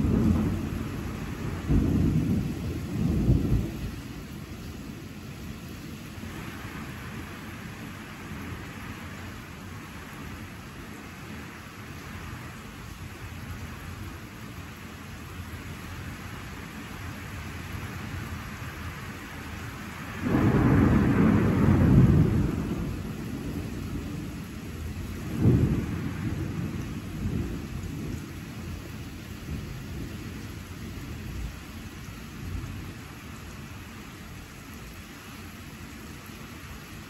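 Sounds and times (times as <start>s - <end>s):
thunder rumbling: 0.0s - 4.6s, 20.0s - 31.6s
steady rain: 0.0s - 37.0s
sharp thunder crack: 20.2s - 23.6s.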